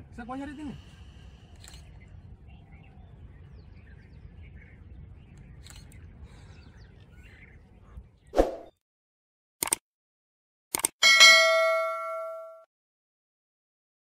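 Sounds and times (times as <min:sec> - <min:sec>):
faint bird chirps: 0:01.3 - 0:08.3.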